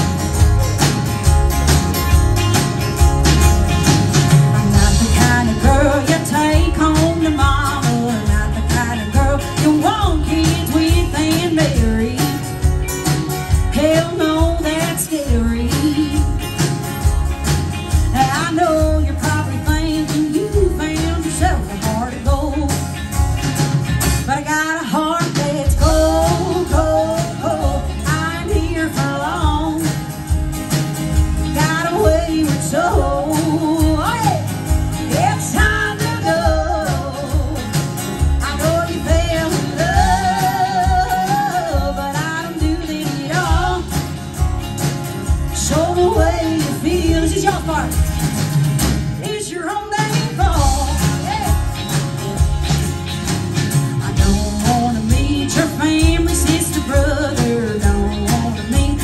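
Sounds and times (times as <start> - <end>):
bass: 0.0 - 59.0
drum kit beat: 0.0 - 59.0
guitars: 0.0 - 59.0
woman singing: 4.6 - 12.8, 13.5 - 16.6, 18.0 - 23.1, 24.2 - 30.3, 31.4 - 44.4, 45.4 - 48.2, 49.2 - 52.6, 54.0 - 59.0.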